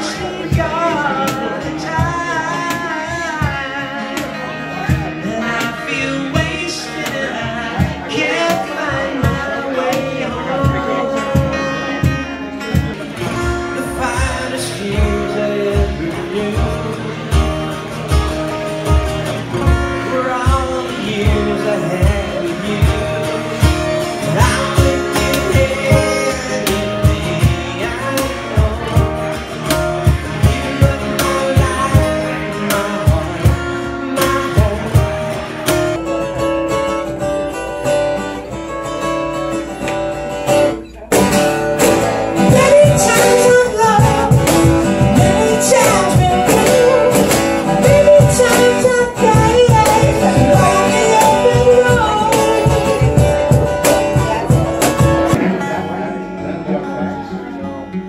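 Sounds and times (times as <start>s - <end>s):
man singing: 0.0s - 39.8s, 41.1s - 58.0s
strummed acoustic guitar: 0.0s - 58.0s
conga drums: 14.2s - 36.8s, 41.1s - 56.1s.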